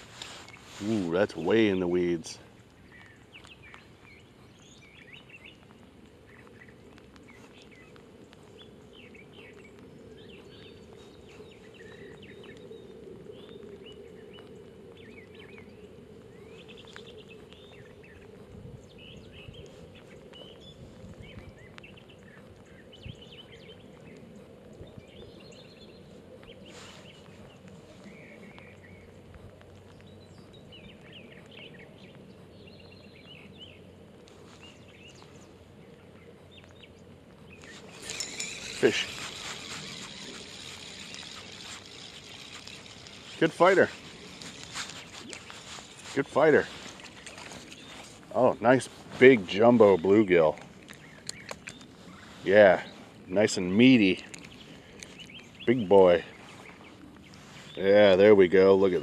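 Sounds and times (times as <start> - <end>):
small birds chirping: 0.0 - 59.0.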